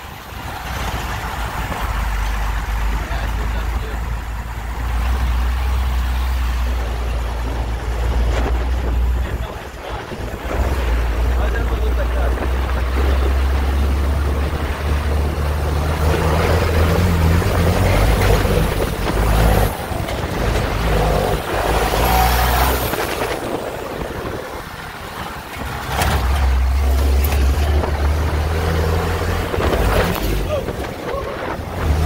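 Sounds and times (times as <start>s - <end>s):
rattling and road noise: 0.0s - 32.0s
vehicle engine rumble: 0.0s - 32.0s
branches scraping a vehicle: 8.2s - 32.0s.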